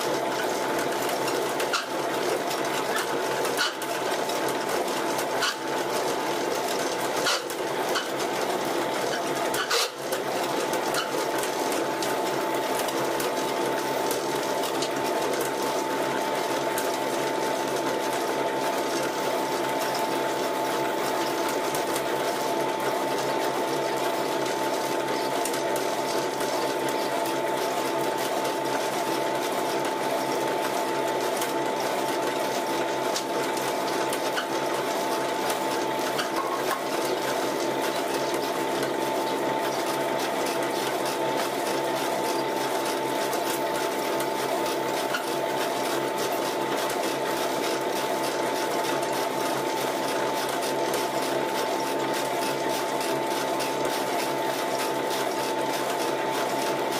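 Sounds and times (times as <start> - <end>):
pellet mill mechanical hum: 0.0 - 56.9.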